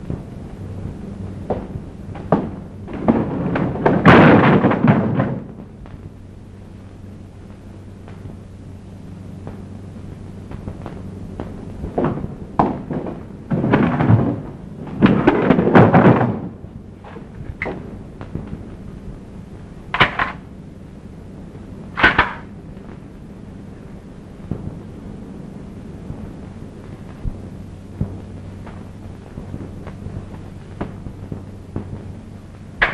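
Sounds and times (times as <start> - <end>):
steady low hum: 0.0 - 32.9
heavy crashes and bangs: 1.5 - 5.5, 12.0 - 16.6
sharp bangs: 19.9 - 20.4, 22.0 - 22.5.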